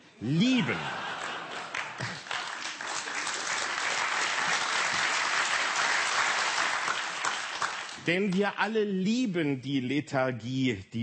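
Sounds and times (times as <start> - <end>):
audience applauding: 0.6 - 8.4.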